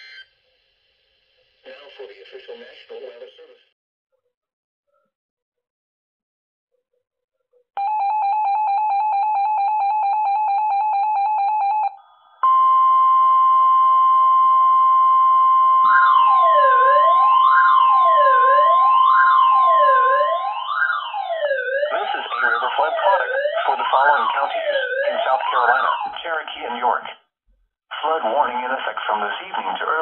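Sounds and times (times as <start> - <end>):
rapidly pulsing electronic beep: 0.0 - 0.3, 12.4 - 26.3
weather radio alarm tone: 0.0 - 0.3, 7.8 - 26.7
siren-like sweeping tone: 12.7 - 26.2.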